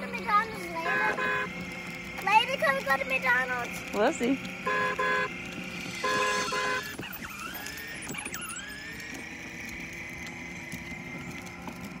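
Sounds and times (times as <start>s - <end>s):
small electric motor whining: 0.0s - 12.0s
electronic horn beep: 0.8s - 1.6s, 4.6s - 7.0s.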